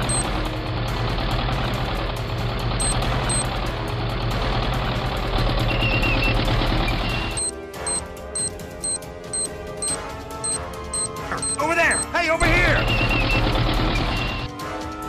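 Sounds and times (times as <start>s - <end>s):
short high beeps: 7.4s - 12.1s.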